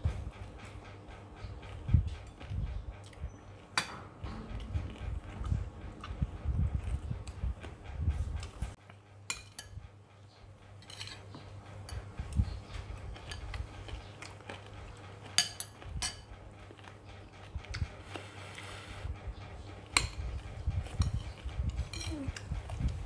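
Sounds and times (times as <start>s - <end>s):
spoons clinking on dishes: 9.3s - 9.7s, 10.8s - 12.0s, 15.3s - 16.3s.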